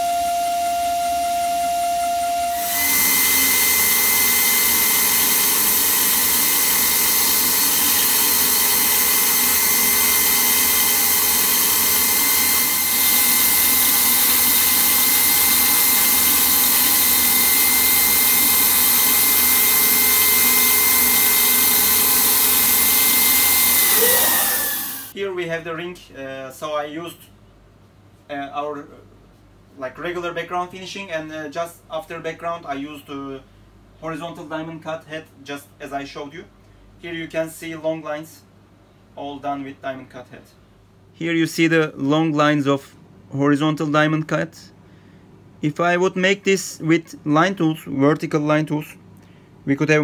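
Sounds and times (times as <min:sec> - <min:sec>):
milling machine spindle whine: 0:00.0 - 0:25.1.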